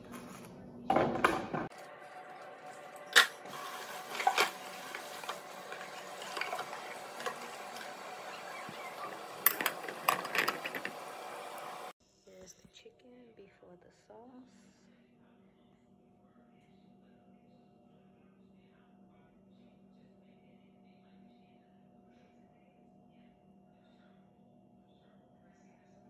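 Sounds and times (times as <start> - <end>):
tap running water: 3.1 - 11.9.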